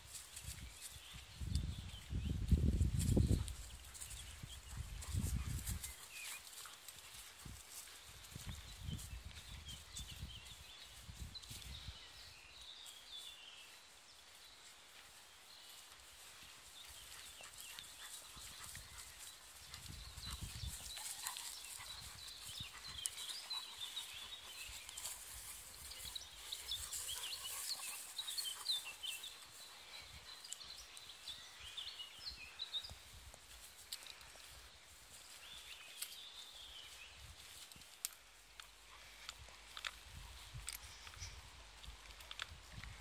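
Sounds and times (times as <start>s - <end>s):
rustling through long grass: 0.0s - 43.0s
small birds chirping: 0.0s - 43.0s
wind rumble on microphone: 0.4s - 5.9s, 19.6s - 21.0s, 42.4s - 43.0s.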